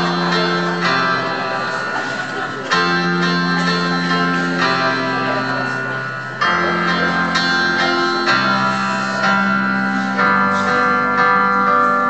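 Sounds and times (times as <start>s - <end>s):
electronic keyboard chords: 0.0s - 12.0s.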